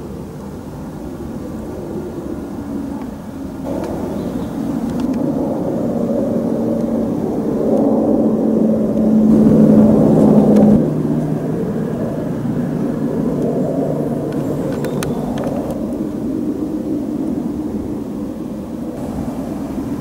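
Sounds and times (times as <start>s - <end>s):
low hum: 0.0s - 20.0s
faint clicks: 4.8s - 5.2s, 14.3s - 16.0s
steam engine rushing: 18.0s - 20.0s.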